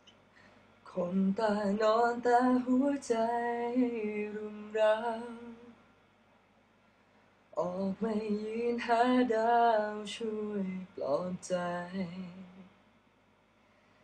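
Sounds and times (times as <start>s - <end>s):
person singing unaccompanied: 0.9s - 5.8s, 7.6s - 12.7s.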